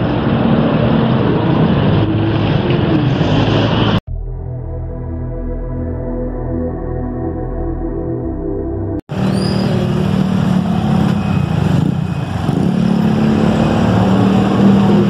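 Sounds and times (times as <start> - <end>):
street traffic noise: 0.0 - 4.0, 9.1 - 15.0
steady engine drone: 0.0 - 15.0
background music: 4.1 - 9.0.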